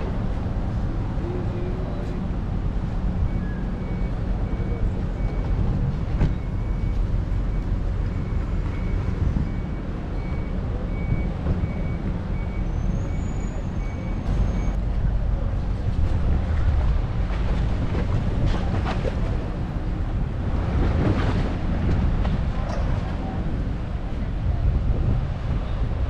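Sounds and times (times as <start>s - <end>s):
vehicle reversing alarm beeps: 3.2s - 14.8s
steady low rumble: 14.2s - 26.0s.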